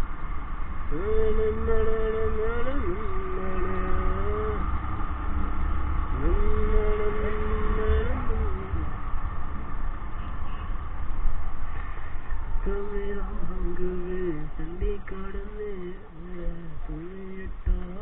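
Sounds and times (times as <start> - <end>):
motorcycle riding noise: 0.0 - 18.0
wind rumble: 0.0 - 18.0
man singing long notes: 0.9 - 4.7, 6.2 - 9.0, 12.6 - 18.0.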